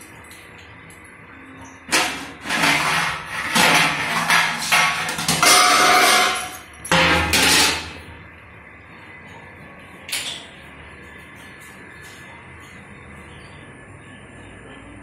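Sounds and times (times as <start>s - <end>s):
metal kitchenware clattering and scraping: 1.8s - 8.1s.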